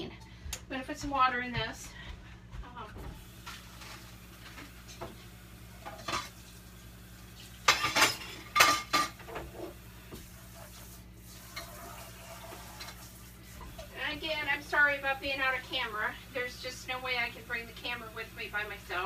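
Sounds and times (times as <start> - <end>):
metal pots and pans clattering: 7.6 - 9.7.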